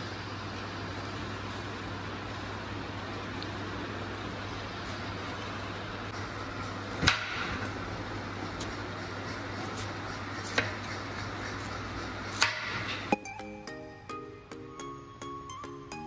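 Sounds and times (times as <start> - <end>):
steady low hum: 0.0 - 16.0
background music: 13.2 - 16.0.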